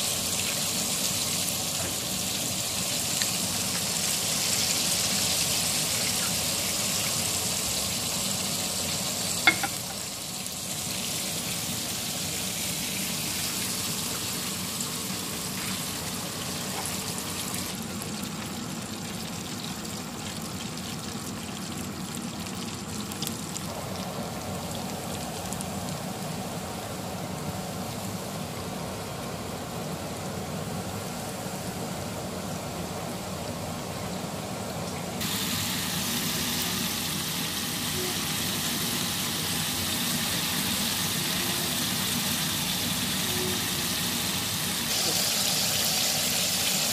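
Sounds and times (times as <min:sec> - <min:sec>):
hot oil sizzling and bubbling: 0:00.0 - 0:46.9.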